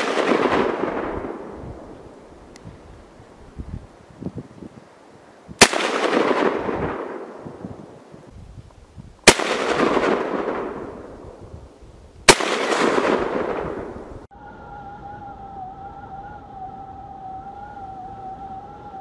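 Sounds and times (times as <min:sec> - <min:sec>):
rifle shots with long echo: 0:00.0 - 0:02.3, 0:05.6 - 0:08.0, 0:09.2 - 0:11.4, 0:12.3 - 0:14.3.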